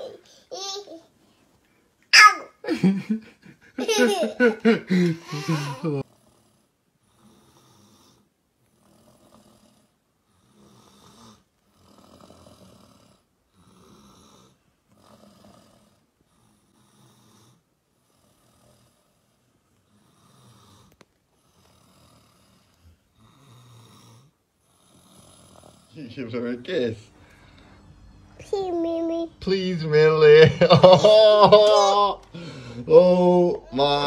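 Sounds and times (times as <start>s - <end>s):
raspy snore-like breathing: 5.5s - 26.0s.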